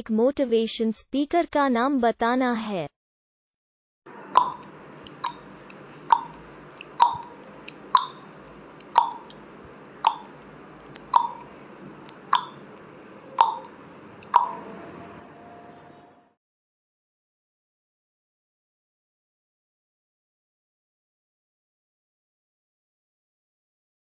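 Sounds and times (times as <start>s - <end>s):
clock-like ticks: 4.3s - 14.6s.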